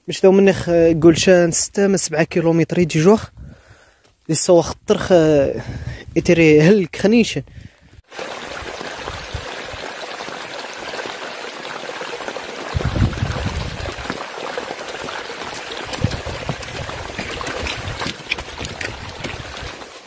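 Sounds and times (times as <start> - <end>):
water trickling down trail: 8.1 - 20.0.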